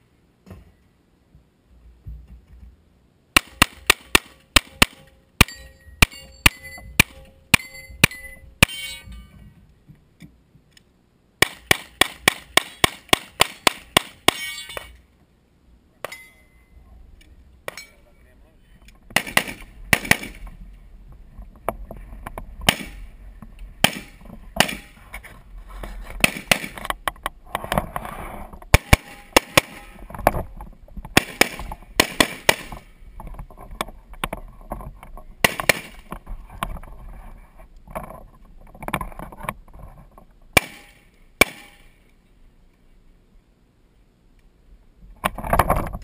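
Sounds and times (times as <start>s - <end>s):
rifle shots: 3.4s - 9.0s, 11.4s - 14.9s, 19.1s - 20.4s, 22.6s - 23.1s, 23.8s - 25.0s, 26.2s - 26.8s, 28.7s - 30.0s, 31.1s - 32.9s, 35.4s - 36.0s, 40.6s - 41.9s.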